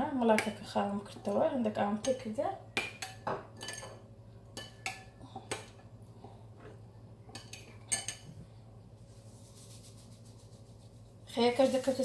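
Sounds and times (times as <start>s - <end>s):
metal spoon clinking on ceramic bowl: 2.8s - 4.0s, 7.3s - 8.3s.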